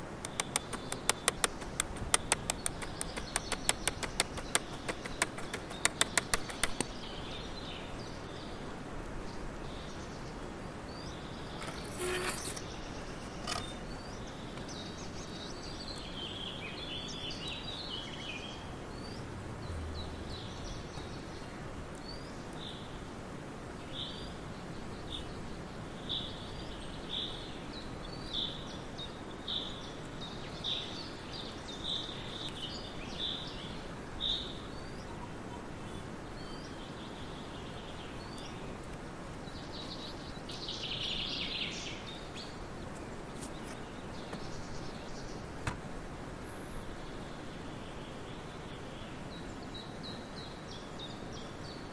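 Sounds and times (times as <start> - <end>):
bird calling: 0.0 - 7.0, 11.5 - 14.7
steady background hiss: 0.0 - 51.9.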